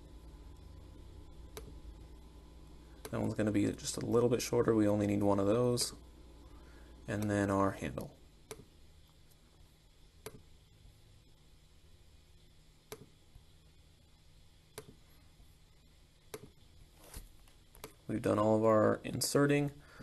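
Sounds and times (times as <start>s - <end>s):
faint computer mouse clicks: 12.9s - 13.1s.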